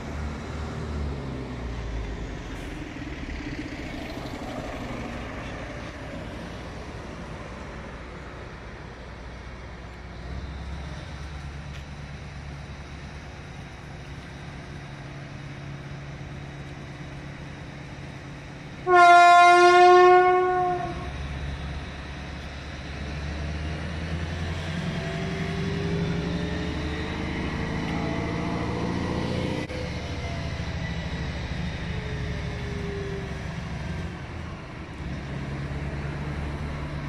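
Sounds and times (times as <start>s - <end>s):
diesel engine working: 0.0s - 37.0s
locomotive horn blast: 18.8s - 21.2s.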